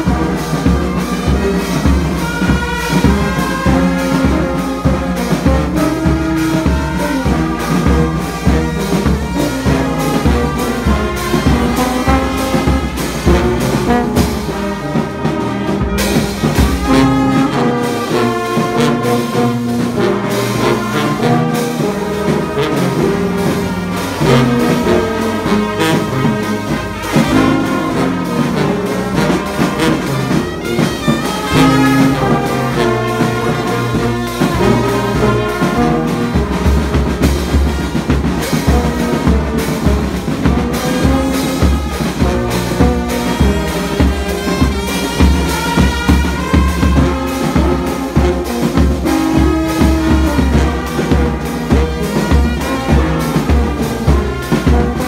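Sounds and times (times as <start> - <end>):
brass band playing: 0.0 - 55.0
cymbals: 0.0 - 55.0
low brass horn bass line: 0.0 - 55.0.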